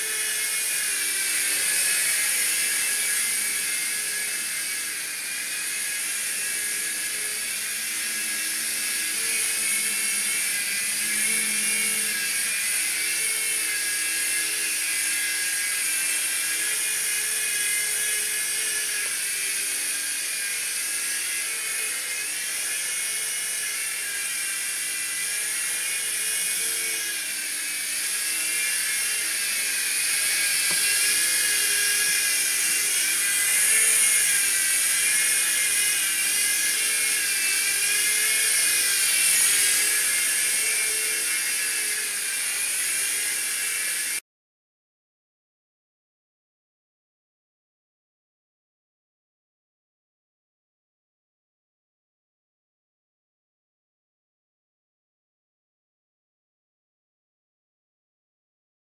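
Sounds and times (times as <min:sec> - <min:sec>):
toy helicopter motor whine: 0:00.0 - 0:44.2.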